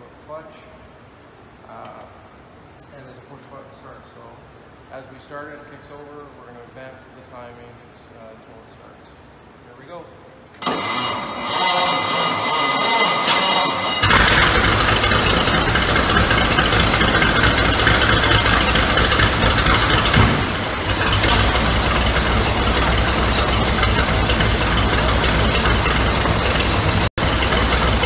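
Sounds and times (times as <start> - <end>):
fire truck engine running: 10.7 - 28.0.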